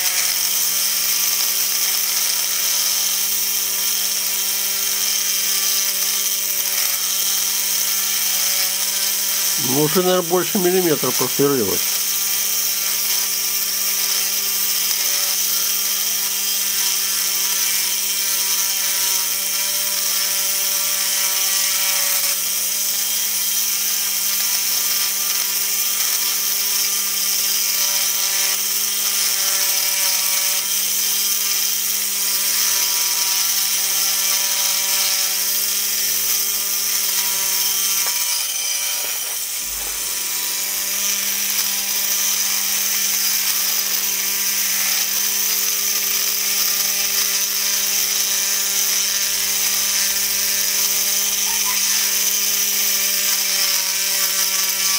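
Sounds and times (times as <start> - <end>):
small electric drill boring: 0.0 - 54.9.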